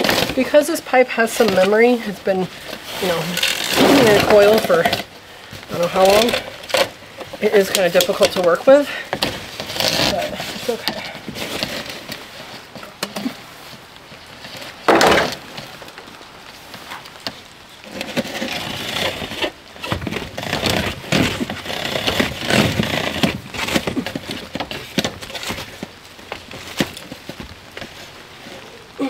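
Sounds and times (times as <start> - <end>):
plastic pipe scraping and crackling: 0.0 - 29.0
loud crash: 3.6 - 4.6, 14.9 - 15.5.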